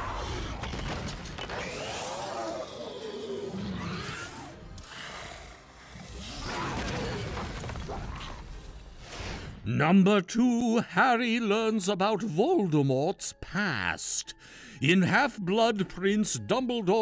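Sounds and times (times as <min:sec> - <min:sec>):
serpent roaring with wavering cries: 0:01.5 - 0:07.4.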